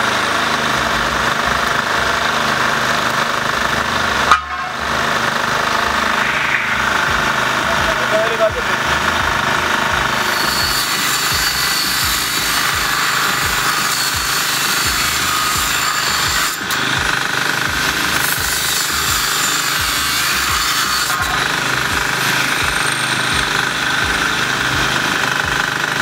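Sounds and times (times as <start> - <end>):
generator engine running: 0.0 - 20.6, 21.2 - 26.0
angle grinder cutting steel: 0.0 - 26.0.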